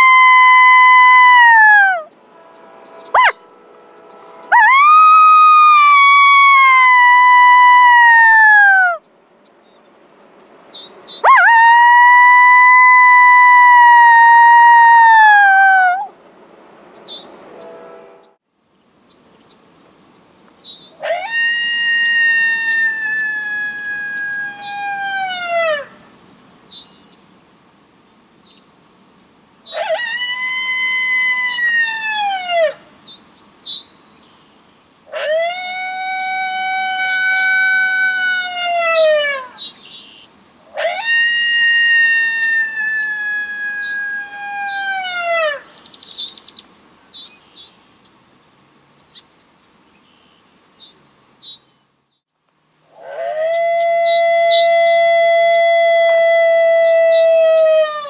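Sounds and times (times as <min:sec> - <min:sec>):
recorded coyote howls: 0:00.0 - 0:02.1, 0:03.1 - 0:03.4, 0:04.5 - 0:09.0, 0:11.2 - 0:16.1, 0:21.0 - 0:26.0, 0:29.7 - 0:32.8, 0:35.1 - 0:39.8, 0:40.7 - 0:45.8, 0:52.9 - 0:58.0
insects trilling: 0:00.0 - 0:17.4, 0:18.5 - 0:58.0.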